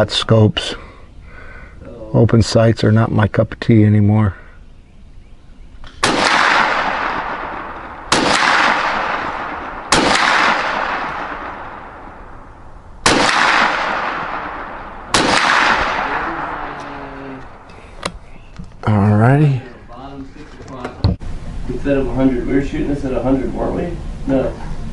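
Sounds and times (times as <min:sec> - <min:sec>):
gunshots with echoing decay: 0:05.9 - 0:17.7.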